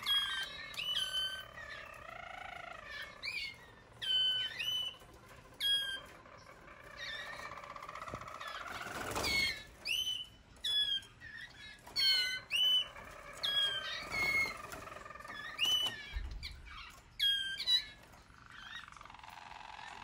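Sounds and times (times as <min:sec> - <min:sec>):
canary calls: 0:00.0 - 0:20.0.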